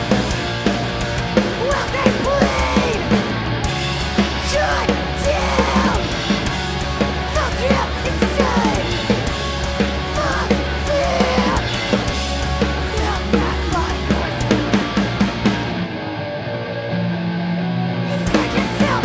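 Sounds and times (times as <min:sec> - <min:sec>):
punk band playing: 0:00.0 - 0:19.0
shouted vocals: 0:01.6 - 0:03.1, 0:04.4 - 0:06.2, 0:07.3 - 0:09.2, 0:10.1 - 0:11.7, 0:12.8 - 0:14.8, 0:18.1 - 0:19.0.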